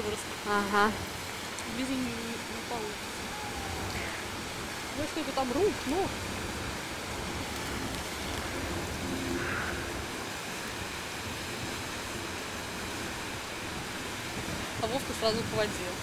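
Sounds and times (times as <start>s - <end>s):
fountain water splashing: 0.0s - 16.0s
faint voices: 1.7s - 6.2s.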